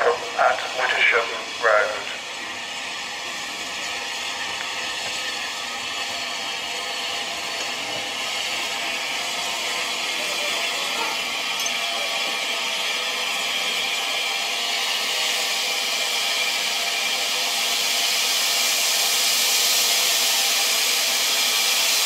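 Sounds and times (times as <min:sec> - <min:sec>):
steam locomotive hissing: 0:00.0 - 0:22.0.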